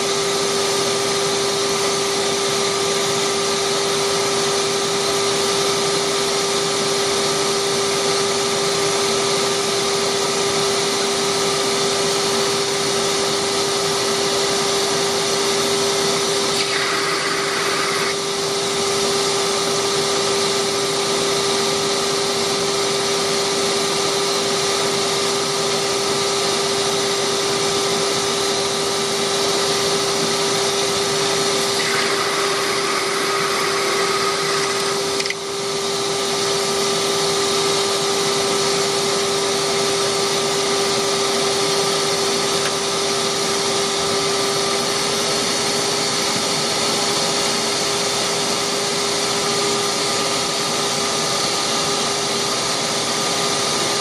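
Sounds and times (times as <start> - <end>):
wood lathe running: 16.1 - 18.5, 30.2 - 35.8.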